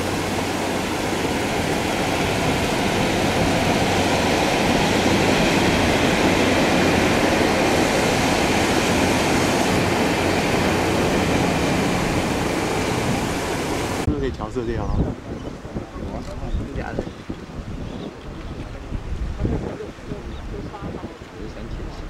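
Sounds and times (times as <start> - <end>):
passenger train passing on rails: 0.0 - 14.1
paddlewheel aerators splashing: 0.0 - 14.6.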